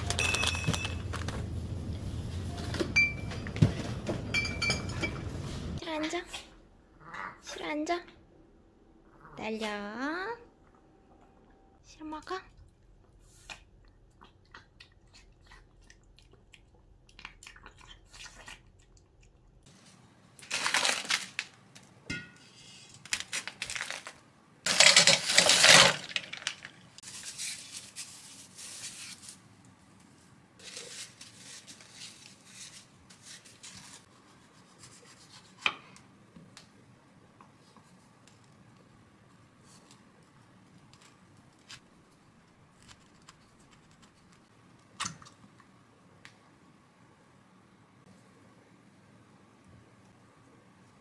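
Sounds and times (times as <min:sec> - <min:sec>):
plastic packet crinkling and tearing: 0:20.4 - 0:21.8, 0:23.0 - 0:28.1.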